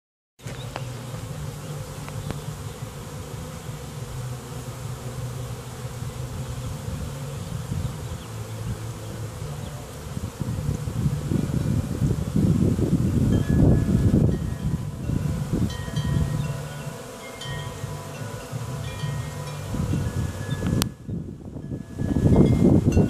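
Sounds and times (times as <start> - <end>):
bee swarm buzzing: 0.4 - 23.0.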